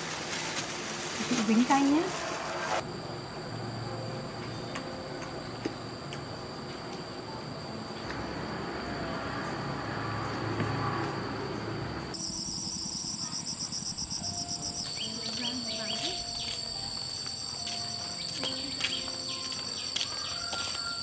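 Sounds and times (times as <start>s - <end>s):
insects trilling: 0.0s - 21.0s.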